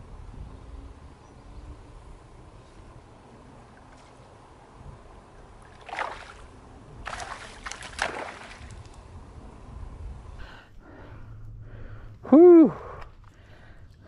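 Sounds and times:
low wind rumble: 0:00.0 - 0:14.0
fish splashing at water surface: 0:05.6 - 0:08.9.

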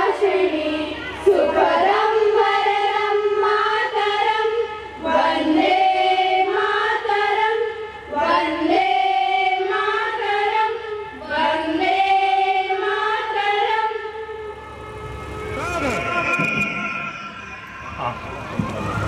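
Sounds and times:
girls singing in unison: 0:00.0 - 0:14.5.

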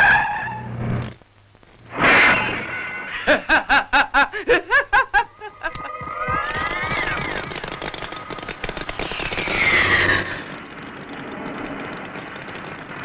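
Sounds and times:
man cackling laugh: 0:03.1 - 0:06.0.

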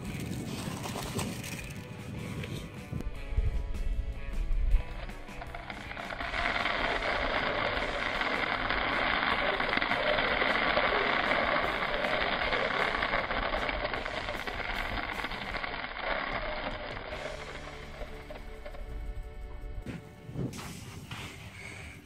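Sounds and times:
sand pouring onto plastic: 0:05.4 - 0:18.8.

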